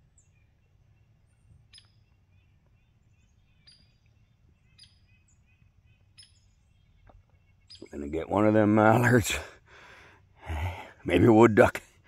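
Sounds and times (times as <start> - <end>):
faint bird chirps: 0.0 - 9.2.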